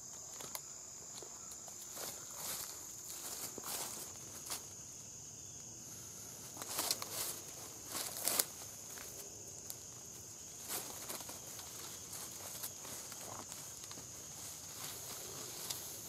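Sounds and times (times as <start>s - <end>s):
high insect trill: 0.0s - 16.0s
footsteps in dry leaves: 1.8s - 4.7s, 6.4s - 9.4s, 10.2s - 16.0s.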